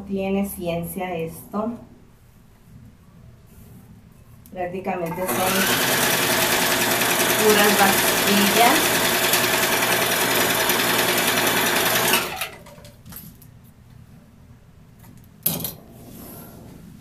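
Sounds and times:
sewing machine running: 5.1 - 12.8.

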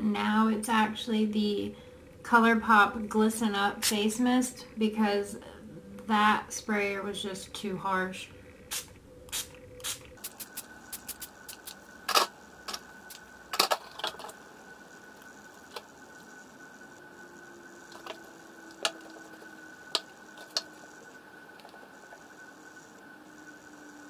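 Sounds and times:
spray bottle spritzing: 8.7 - 11.8.

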